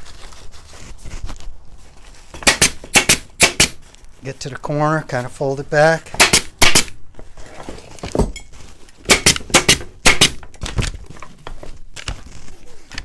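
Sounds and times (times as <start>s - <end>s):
burlap rustling: 0.0s - 2.4s, 3.8s - 5.4s, 7.0s - 9.0s, 10.6s - 13.0s
pneumatic stapler firing: 2.4s - 3.8s, 6.2s - 7.0s, 9.1s - 10.4s.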